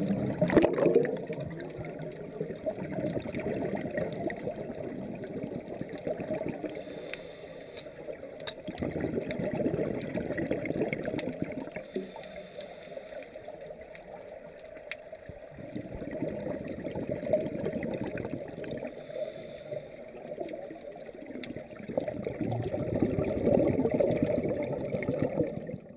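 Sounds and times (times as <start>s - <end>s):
underwater bubbling rumble: 0.0s - 7.0s, 8.0s - 12.5s, 13.4s - 25.9s
faint clicks: 5.9s - 9.5s, 10.9s - 15.8s, 18.1s - 21.8s.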